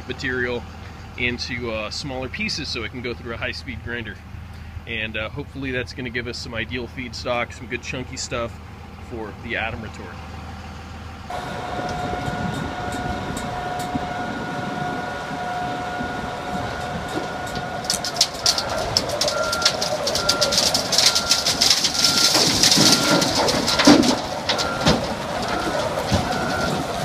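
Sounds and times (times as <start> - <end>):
backup alarm beeping: 11.3 - 17.8, 18.6 - 23.9, 24.5 - 26.8
wood cracking: 16.8 - 27.0
wood chunks clattering into trailer: 17.1 - 27.0.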